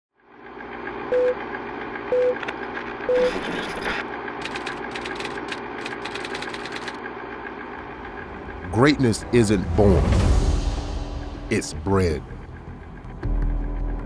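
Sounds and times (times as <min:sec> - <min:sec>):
film projector whirring: 0:00.3 - 0:08.6
typewriter key clicks: 0:04.4 - 0:07.0.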